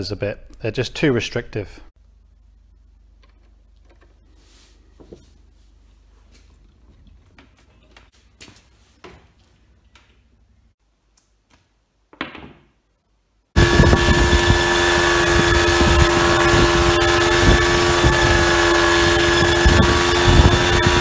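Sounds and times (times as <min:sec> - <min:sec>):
low steady hum: 0:00.0 - 0:08.0.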